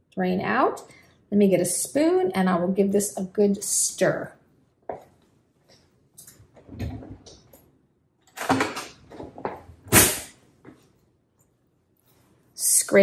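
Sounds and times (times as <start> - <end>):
kitchen drawer opening and shutting: 6.6 - 7.3, 8.4 - 10.3.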